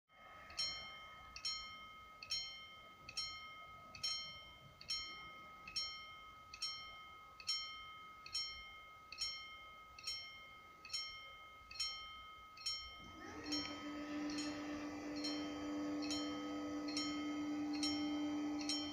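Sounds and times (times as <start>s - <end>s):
level-crossing warning bell: 0.1s - 18.9s
barrier motor humming: 13.0s - 18.9s.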